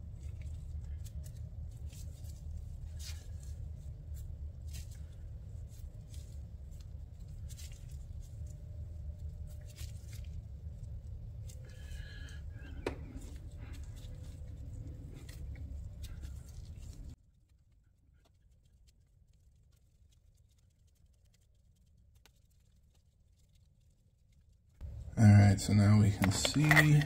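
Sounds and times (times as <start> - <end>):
steady low hum: 0.0 - 17.2, 24.8 - 27.0.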